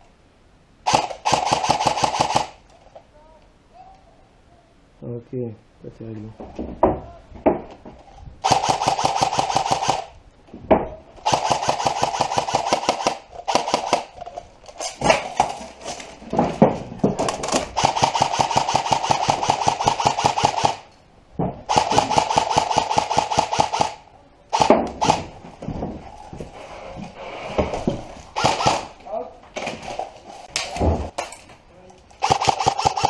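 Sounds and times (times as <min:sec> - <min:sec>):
airsoft rifle full auto bursts: 0:00.9 - 0:02.6, 0:08.4 - 0:10.1, 0:11.2 - 0:14.2, 0:17.8 - 0:20.9, 0:21.7 - 0:25.2, 0:28.4 - 0:28.9, 0:32.2 - 0:33.0.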